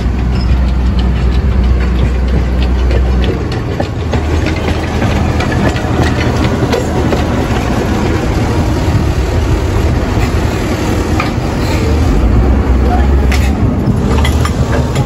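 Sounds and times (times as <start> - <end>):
diesel locomotive engine running: 0.0 - 15.0.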